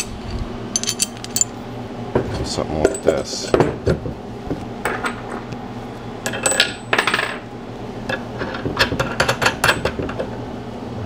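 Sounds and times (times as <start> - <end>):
metallic clinks of washers and nuts: 0.7 - 1.5.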